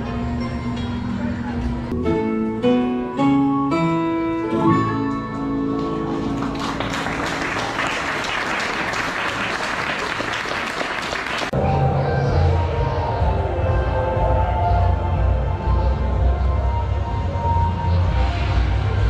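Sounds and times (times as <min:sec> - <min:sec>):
plucked guitar chords: 0:01.9 - 0:06.5
audience applause: 0:05.7 - 0:11.6.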